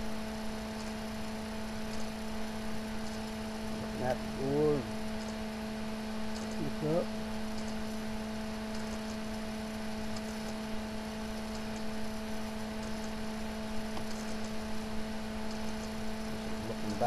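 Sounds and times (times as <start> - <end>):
steady hum: 0.0 - 17.0.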